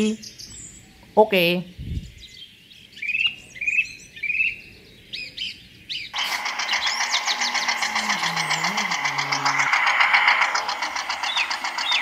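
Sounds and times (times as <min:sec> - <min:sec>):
bird chirping: 0:00.0 - 0:12.0
small motor buzzing: 0:06.2 - 0:12.0.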